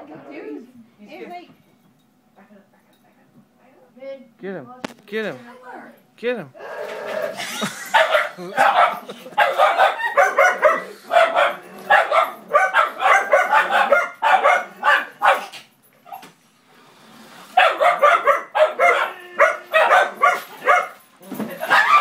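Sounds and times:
puppies barking: 0:06.6 - 0:15.6, 0:17.6 - 0:22.0.

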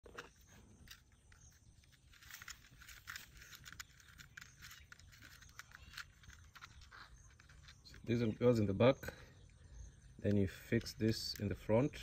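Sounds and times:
faint clicks and crackles: 0:00.0 - 0:08.4.

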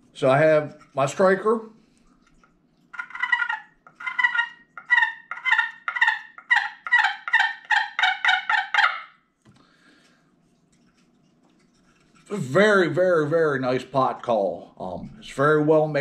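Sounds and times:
turkey call yelps: 0:03.0 - 0:09.2.

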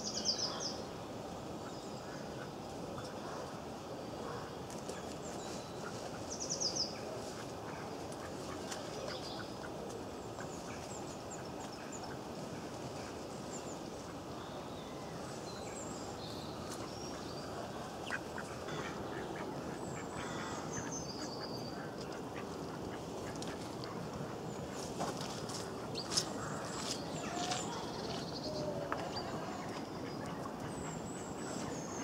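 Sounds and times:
steady outdoor hiss: 0:00.0 - 0:32.0
small birds chirping: 0:04.6 - 0:32.0
ducks quacking: 0:18.0 - 0:24.9.

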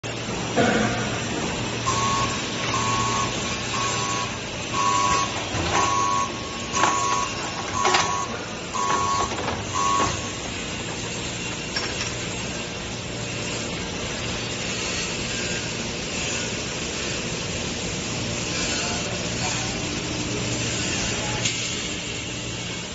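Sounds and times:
machine humming: 0:00.0 - 0:22.9.

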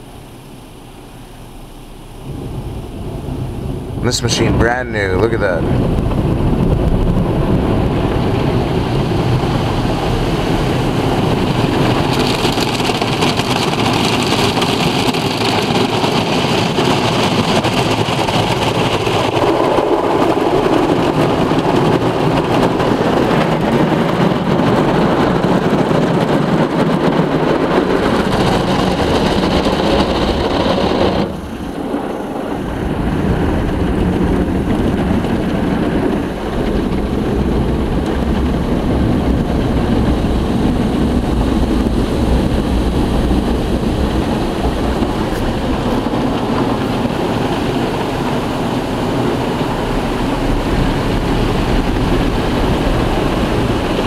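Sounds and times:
car wash brushes scrubbing: 0:07.5 - 0:24.4, 0:39.8 - 0:54.0.

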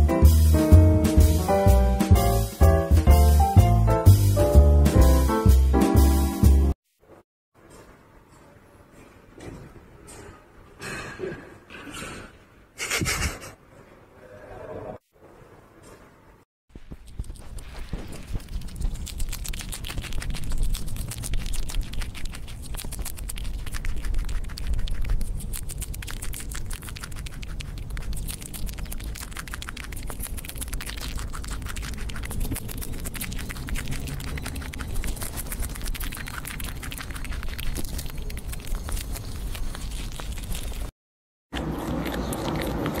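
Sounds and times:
squirrel nibbling and crunching: 0:16.8 - 0:40.9, 0:41.6 - 0:43.0.

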